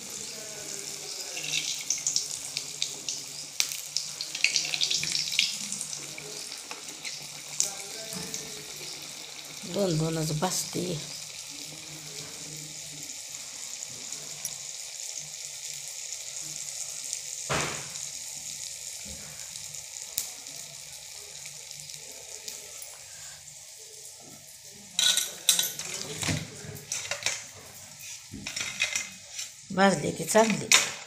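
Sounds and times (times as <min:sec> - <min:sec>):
oil sizzling: 0:00.0 - 0:31.0
utensils clattering: 0:01.2 - 0:01.9, 0:24.9 - 0:27.8, 0:28.4 - 0:29.6, 0:30.3 - 0:31.0.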